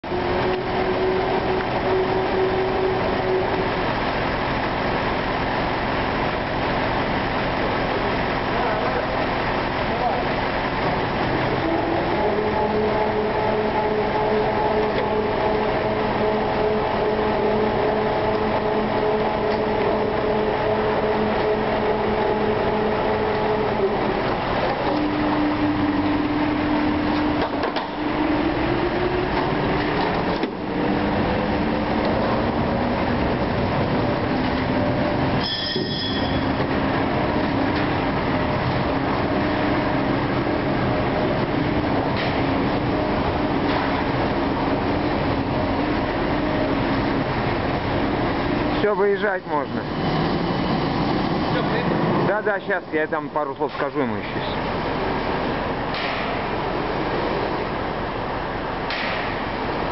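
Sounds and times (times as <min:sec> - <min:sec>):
crane machine hum: 0:00.0 - 0:59.9
hoist whine: 0:00.0 - 0:59.9
high-pitched squeal: 0:35.3 - 0:36.8.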